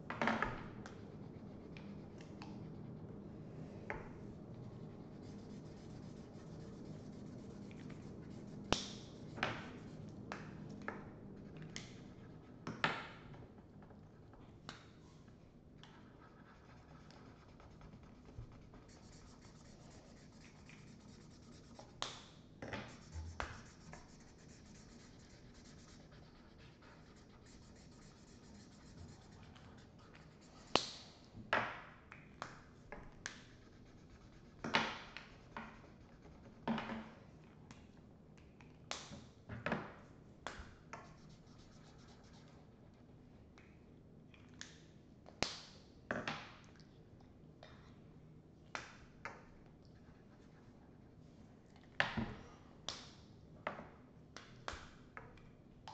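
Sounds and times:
markers scratching on paper: 0:04.6 - 0:10.1, 0:16.2 - 0:22.2, 0:22.8 - 0:30.9.

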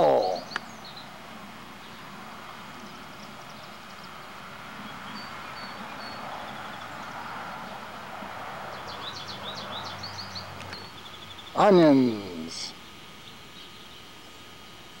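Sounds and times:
whistled bird notes: 0:00.0 - 0:01.1
background hiss: 0:00.0 - 0:15.0
small birds chirping: 0:00.0 - 0:15.0.

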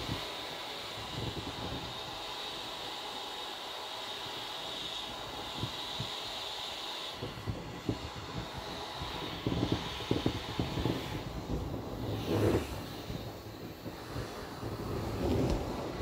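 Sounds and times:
air hissing from inflatable: 0:00.0 - 0:16.0.

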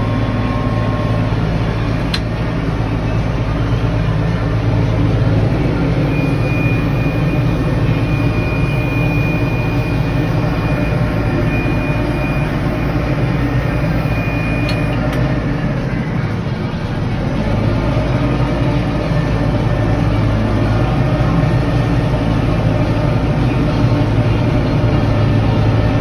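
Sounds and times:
tractor diesel engine running: 0:00.0 - 0:26.0
thin high whine: 0:06.0 - 0:16.5.

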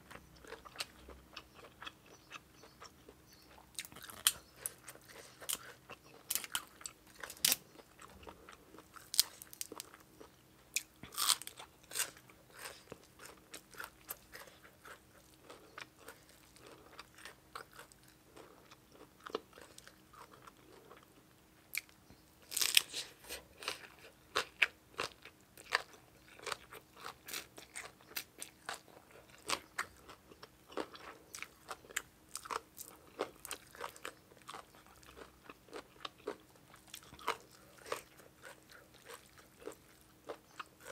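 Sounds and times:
person crunching raw vegetables: 0:00.1 - 0:21.0, 0:21.7 - 0:40.9.

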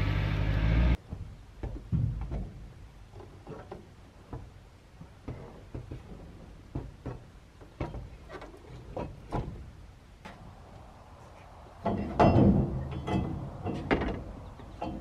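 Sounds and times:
irregular knocks and clicks: 0:01.0 - 0:09.6.

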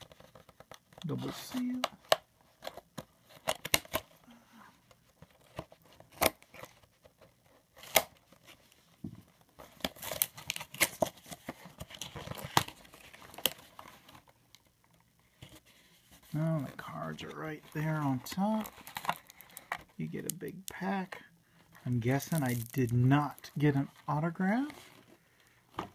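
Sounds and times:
plastic wrap tearing and crinkling: 0:09.7 - 0:14.1, 0:18.5 - 0:20.8, 0:21.9 - 0:23.8.

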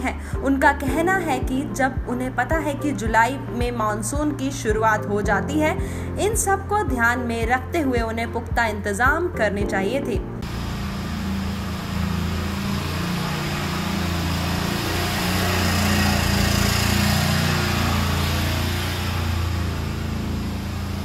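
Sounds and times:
small engine running: 0:10.4 - 0:21.0.

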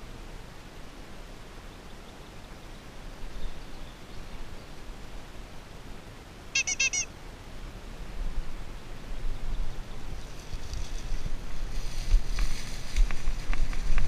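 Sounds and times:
toy bike horn squeaking: 0:06.6 - 0:07.1.

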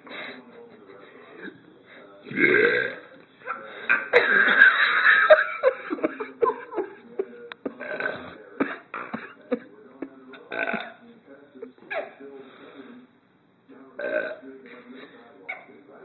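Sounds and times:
man burping: 0:02.3 - 0:03.0, 0:07.7 - 0:09.4, 0:10.4 - 0:11.0, 0:14.0 - 0:14.4.

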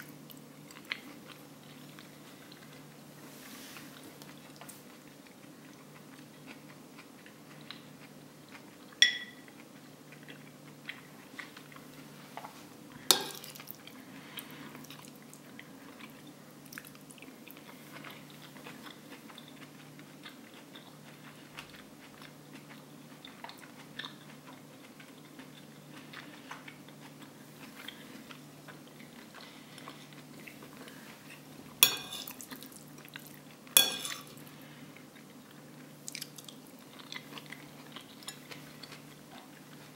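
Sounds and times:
soft chewing: 0:00.0 - 0:39.9
sharp spoon clinks: 0:09.0 - 0:09.4
spoon scraping a plate: 0:31.8 - 0:32.4, 0:33.8 - 0:34.4.

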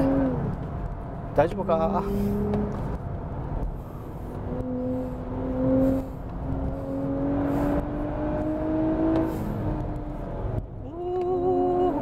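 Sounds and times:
road and tyre noise: 0:00.0 - 0:12.0
car engine accelerating: 0:01.9 - 0:10.8.

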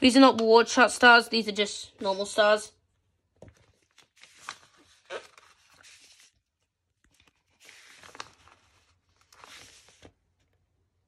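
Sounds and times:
sticker sheet crinkling: 0:07.0 - 0:10.2.

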